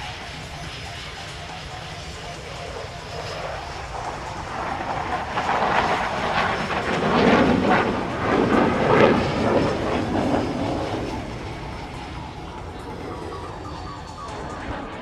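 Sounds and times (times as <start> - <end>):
fighter jet flying past: 0.0 - 15.0.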